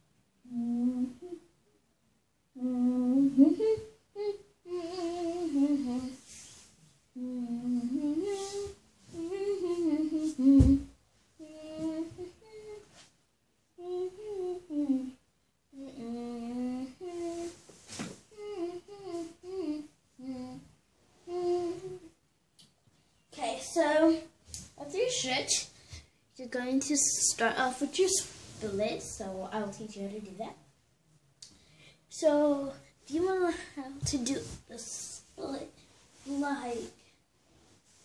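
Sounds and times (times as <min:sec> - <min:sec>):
girl humming: 0:00.4 - 0:01.5, 0:02.5 - 0:06.4, 0:07.2 - 0:13.0, 0:13.8 - 0:17.6, 0:18.3 - 0:22.2.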